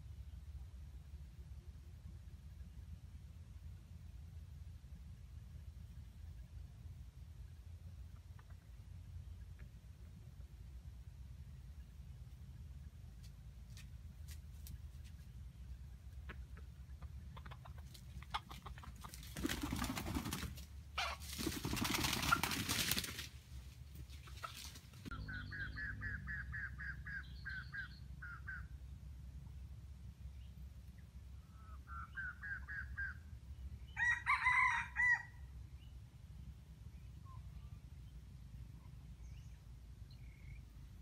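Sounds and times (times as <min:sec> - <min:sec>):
rooster clucking: 0:16.2 - 0:22.8, 0:24.2 - 0:28.6
rooster crowing: 0:33.9 - 0:35.5.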